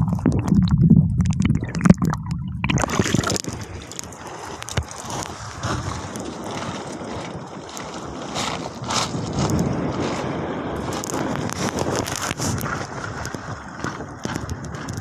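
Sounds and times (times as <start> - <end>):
sea water rushing: 0.0 - 7.5
underwater rumbling and sloshing: 0.0 - 15.0
wind on microphone: 0.0 - 15.0.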